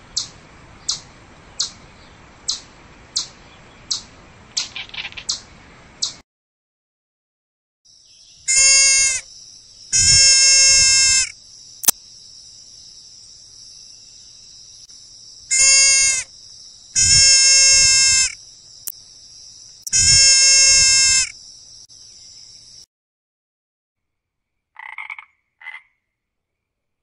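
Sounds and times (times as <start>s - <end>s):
hoofed animal bleating: 19.9s - 21.3s.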